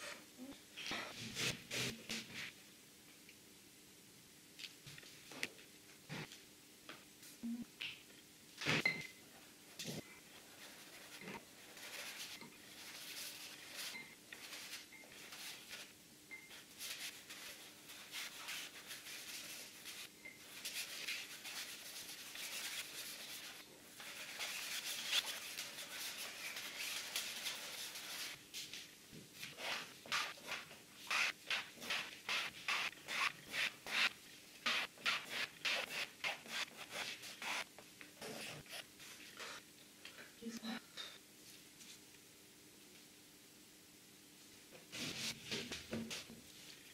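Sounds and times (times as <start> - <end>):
paintbrush scrubbing canvas: 10.6 - 15.9, 16.7 - 28.4, 29.4 - 39.6, 44.9 - 45.4.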